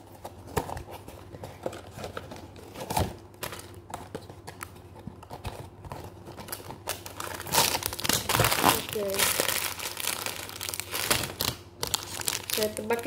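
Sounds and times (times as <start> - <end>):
paper crinkling: 0.0 - 13.0.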